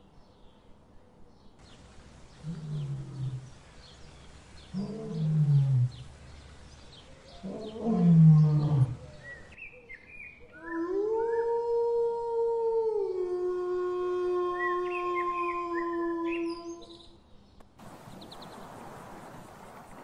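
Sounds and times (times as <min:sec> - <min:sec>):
lion growling: 0:02.3 - 0:03.6, 0:04.6 - 0:06.2, 0:07.3 - 0:09.5
wolf howling: 0:07.3 - 0:09.5, 0:10.6 - 0:16.9.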